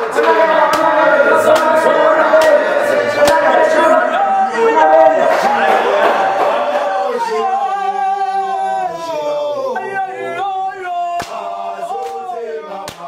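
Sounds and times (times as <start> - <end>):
men singing unaccompanied: 9.6 - 13.0.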